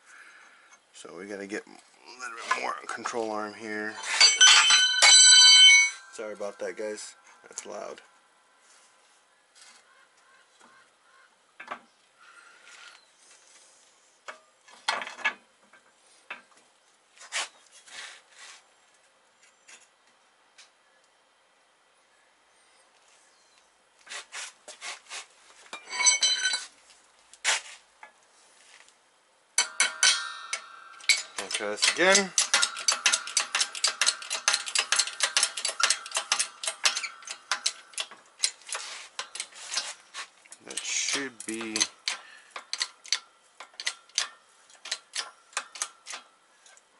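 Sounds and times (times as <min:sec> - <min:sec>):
steel parts clanking and scraping: 0:02.3 - 0:07.9, 0:25.7 - 0:26.7, 0:29.6 - 0:46.3
hydraulic press pump metallic clicks: 0:29.6 - 0:39.9, 0:40.7 - 0:46.3.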